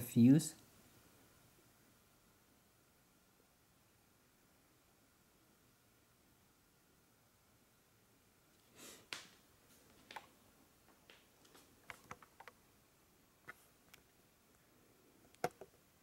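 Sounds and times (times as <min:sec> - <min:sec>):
faint handling clicks and taps: 0:11.1 - 0:12.6.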